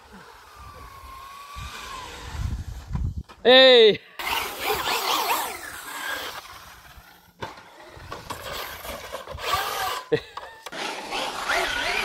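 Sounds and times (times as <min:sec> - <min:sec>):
rc car motor whine: 0:00.0 - 0:03.2, 0:04.2 - 0:12.0.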